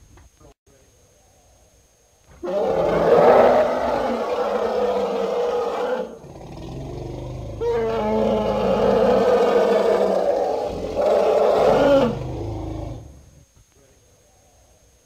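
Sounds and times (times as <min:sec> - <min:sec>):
elephant roaring: 0:02.4 - 0:13.3
elephant low rumble: 0:06.0 - 0:13.5.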